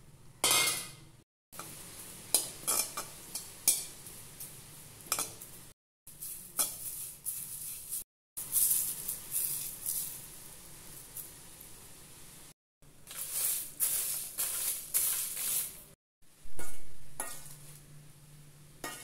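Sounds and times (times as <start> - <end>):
metal spatula scraping pan: 16.6 - 17.8.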